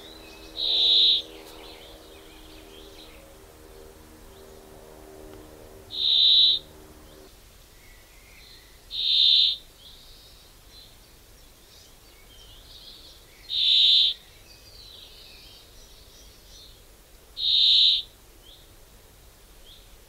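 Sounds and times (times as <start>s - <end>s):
high-pitched bird call: 0.0s - 3.3s, 5.9s - 7.3s
faint birds twittering: 0.0s - 20.0s.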